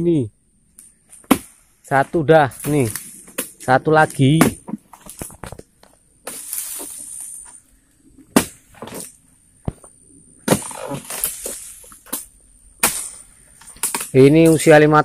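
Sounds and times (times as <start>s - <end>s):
rustle: 0.8s - 15.0s
chisel chopping into palm crown: 1.2s - 1.6s, 4.3s - 4.8s, 8.3s - 9.1s, 10.4s - 12.2s.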